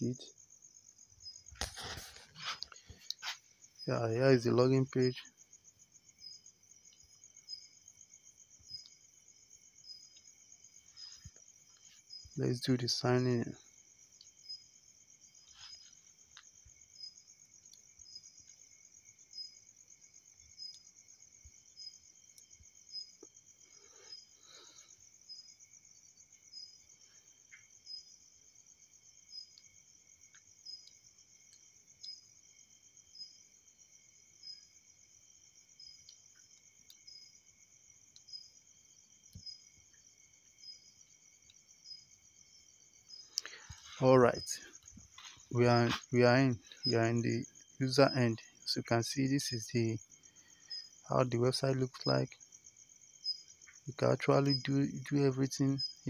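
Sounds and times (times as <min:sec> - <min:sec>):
faint regular ticks: 0:01.2 - 0:03.8, 0:06.2 - 0:07.8, 0:08.5 - 0:09.1, 0:09.8 - 0:14.7, 0:15.3 - 0:56.0
faint high-pitched chirring: 0:29.2 - 0:33.7, 0:35.7 - 0:52.5.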